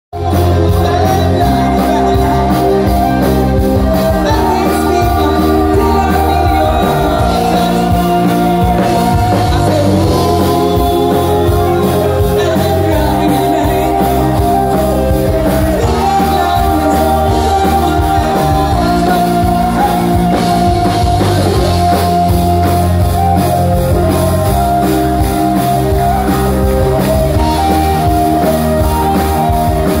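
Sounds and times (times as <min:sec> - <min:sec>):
live rock band playing: 0:00.1 - 0:30.0
person singing: 0:00.2 - 0:30.0.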